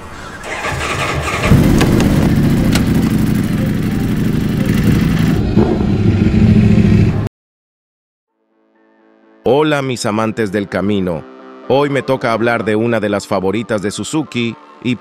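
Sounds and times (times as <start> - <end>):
motorcycle engine running: 1.2 - 7.3.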